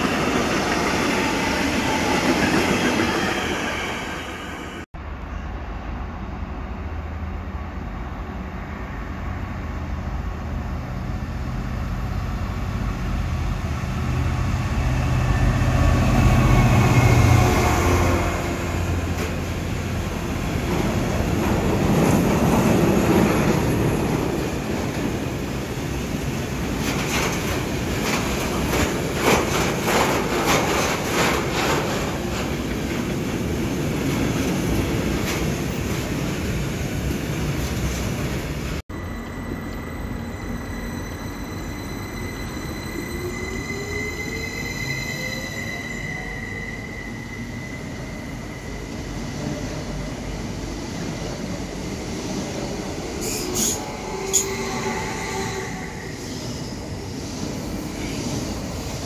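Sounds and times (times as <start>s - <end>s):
train low hum: 0.0s - 59.0s
train wagons rumbling: 14.0s - 38.8s.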